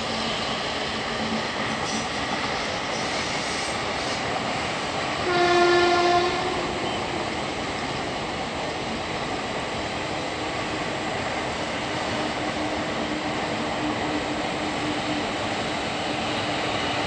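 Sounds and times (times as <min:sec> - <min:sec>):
passenger train running past: 0:00.0 - 0:17.0
locomotive horn: 0:05.2 - 0:07.1.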